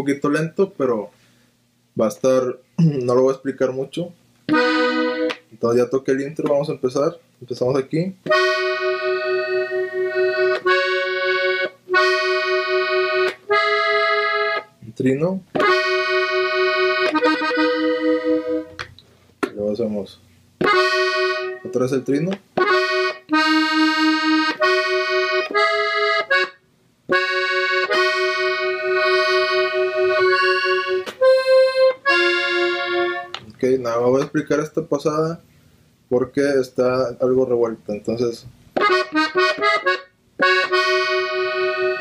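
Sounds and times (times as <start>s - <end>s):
accordion long held notes: 4.5s - 5.4s, 8.3s - 14.7s, 15.6s - 18.8s, 20.6s - 21.9s, 22.6s - 33.4s, 38.8s - 42.0s.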